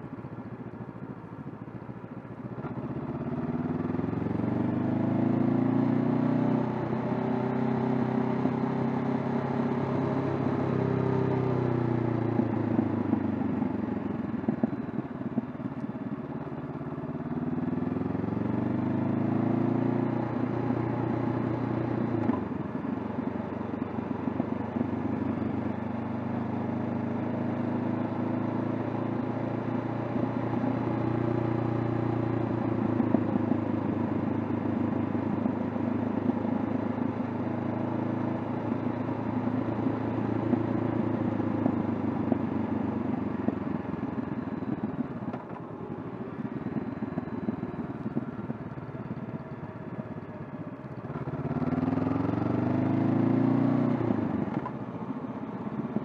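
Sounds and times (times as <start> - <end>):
motorcycle engine revving: 2.6 - 15.6, 50.9 - 56.0.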